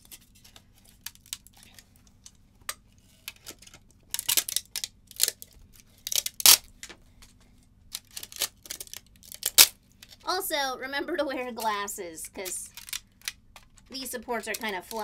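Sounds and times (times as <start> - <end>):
cutters snapping plastic: 3.3 - 5.5, 6.1 - 7.0, 7.9 - 9.8, 12.4 - 15.0.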